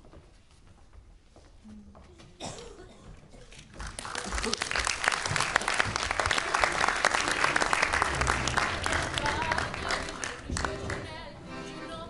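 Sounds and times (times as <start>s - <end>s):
audience applauding: 3.7s - 11.1s.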